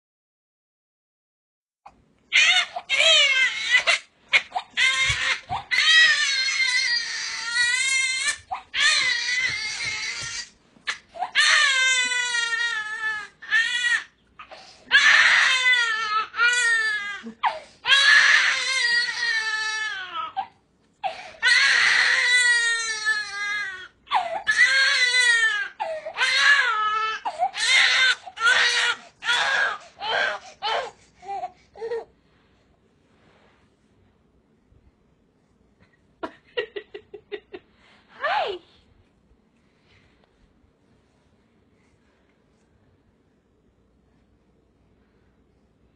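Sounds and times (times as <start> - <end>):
infant crying: 2.3 - 32.1.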